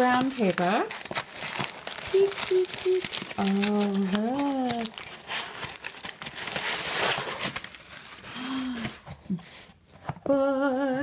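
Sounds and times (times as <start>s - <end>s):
packing paper rustling: 0.0s - 10.1s
person humming: 2.1s - 4.7s, 10.3s - 11.0s.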